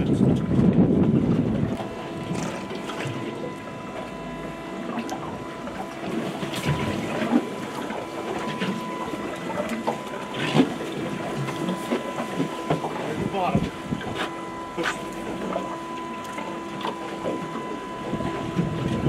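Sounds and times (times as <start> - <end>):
boat engine hum: 0.0 - 19.0
water against hull: 0.0 - 19.0.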